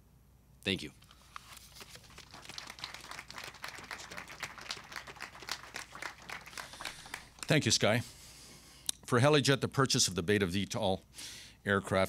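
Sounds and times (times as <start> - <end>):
audience applauding: 1.9 - 7.6.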